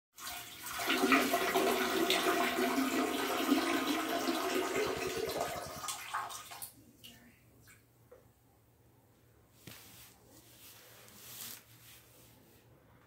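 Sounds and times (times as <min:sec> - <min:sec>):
toilet flushing: 0:00.2 - 0:06.8.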